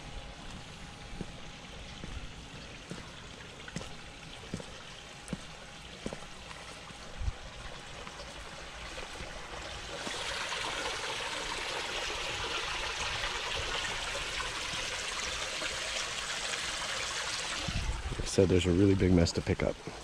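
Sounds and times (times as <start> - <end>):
water streaming into pool: 0.0 - 20.0.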